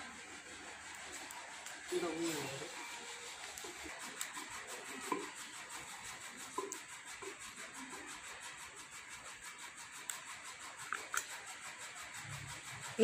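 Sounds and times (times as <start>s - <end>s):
wooden masher rubbing and scraping: 0.0s - 13.0s
small clicks: 10.0s - 11.4s.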